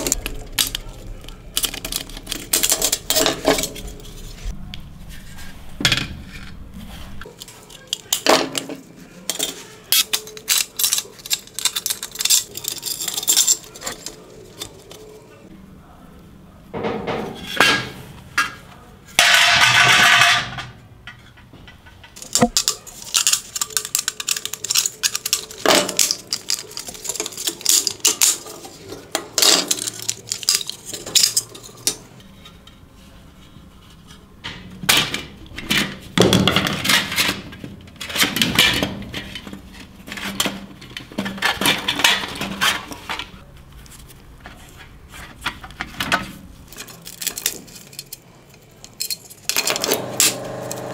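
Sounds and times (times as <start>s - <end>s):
metal parts clinking and clattering: 0.0s - 4.5s, 7.2s - 15.2s, 19.2s - 32.2s, 34.9s - 43.4s, 45.5s - 50.8s.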